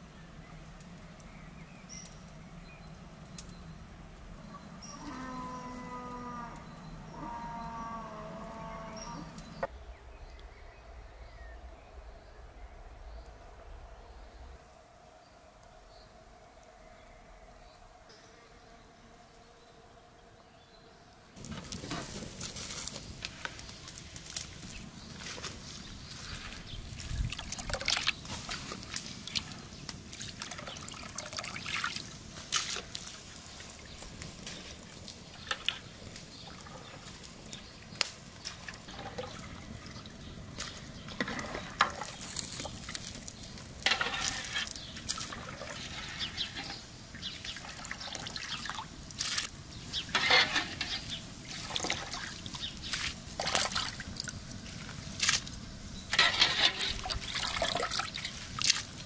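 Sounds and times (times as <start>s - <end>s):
water trickling off a skimmer: 23.8s - 37.6s, 38.4s - 49.5s, 50.2s - 59.0s.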